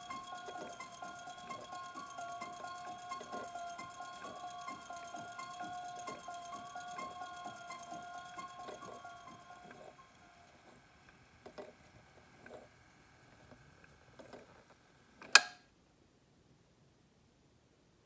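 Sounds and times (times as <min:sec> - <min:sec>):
faint steady high tone: 0:00.0 - 0:12.7.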